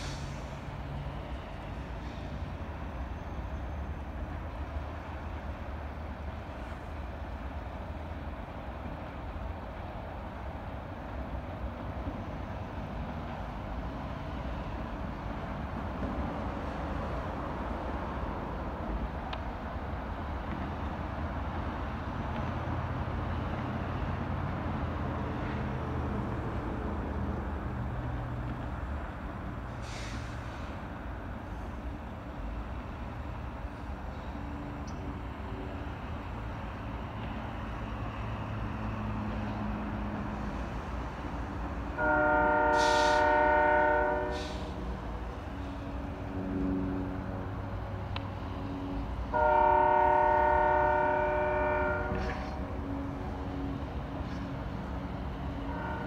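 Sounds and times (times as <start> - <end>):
diesel locomotive rumbling: 0.0 - 56.0
locomotive horn blast: 41.9 - 45.0, 49.2 - 53.8, 55.5 - 56.0.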